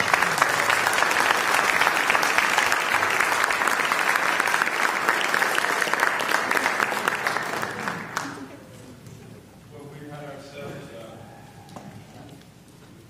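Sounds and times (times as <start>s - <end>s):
congregation applauding: 0.0s - 8.6s.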